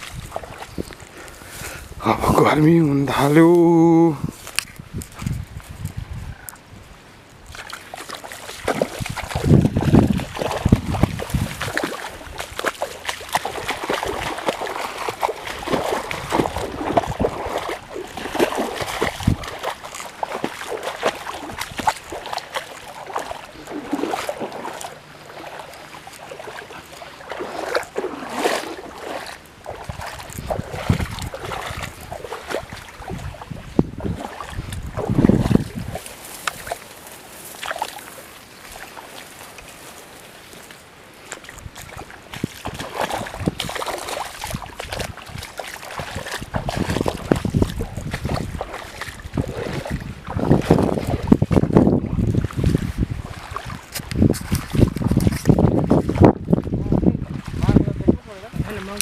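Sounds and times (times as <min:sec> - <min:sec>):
wind buffeting microphone: 0:00.0 - 0:07.7, 0:08.4 - 0:25.7, 0:27.3 - 0:36.8, 0:41.5 - 0:59.0
reeds rustling and crackling: 0:07.3 - 0:50.3.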